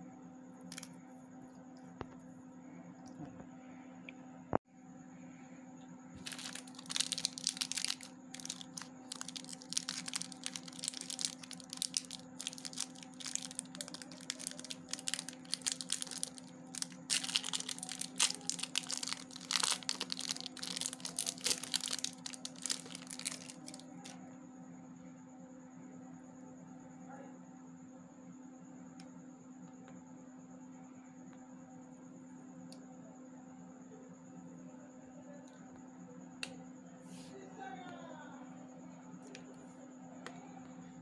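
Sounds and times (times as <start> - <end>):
candy wrapper crinkling: 6.2 - 24.1.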